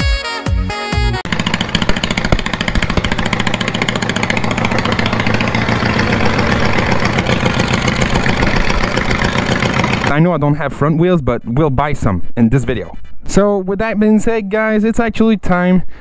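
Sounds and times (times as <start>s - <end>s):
lawn mower engine running loudly: 1.3s - 10.1s.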